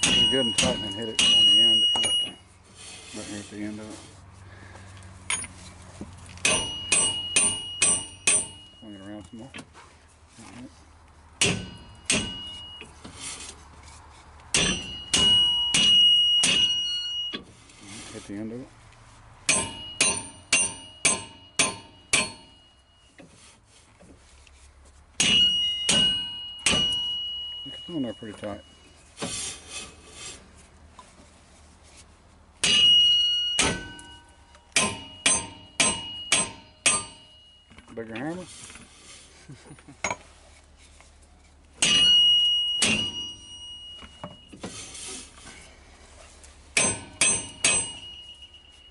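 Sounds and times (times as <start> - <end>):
hammer striking metal puller: 0.0 - 2.4, 6.4 - 8.9, 11.4 - 12.9, 14.5 - 17.5, 19.5 - 23.3, 25.2 - 28.2, 32.6 - 37.9, 41.8 - 45.5, 46.7 - 48.8
metal puller ringing: 0.0 - 2.4, 6.4 - 9.7, 11.4 - 13.0, 14.5 - 17.5, 19.5 - 23.2, 25.2 - 28.7, 32.6 - 38.3, 41.8 - 45.6, 46.8 - 48.9.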